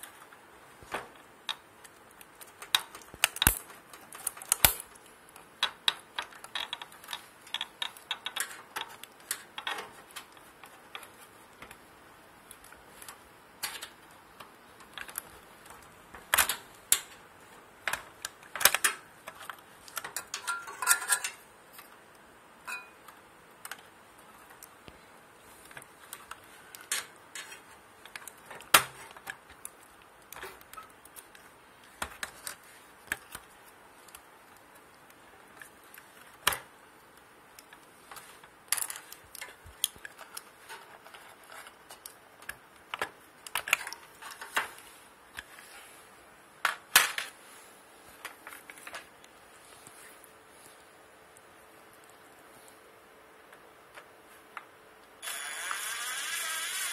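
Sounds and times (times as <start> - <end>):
screwdriver clicking on plastic and metal: 1.5 - 11.8.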